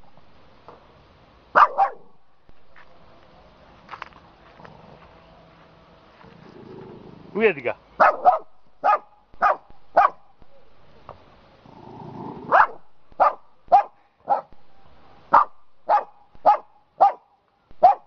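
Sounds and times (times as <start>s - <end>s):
dog barking sharply: 1.6s - 2.1s, 8.0s - 10.3s, 12.5s - 14.5s, 15.3s - 17.2s, 17.8s - 18.0s.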